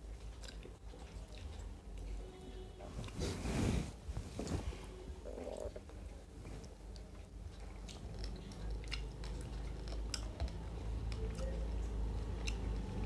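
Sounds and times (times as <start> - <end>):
people chewing: 0.0 - 2.3, 5.2 - 13.0
low steady hum: 0.0 - 13.0.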